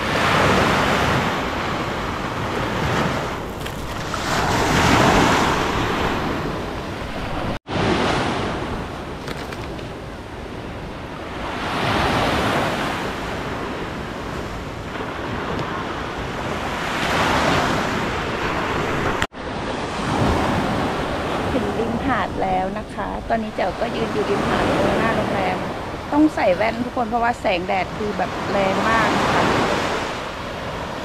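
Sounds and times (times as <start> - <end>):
sea waves breaking on beach: 0.0 - 31.0.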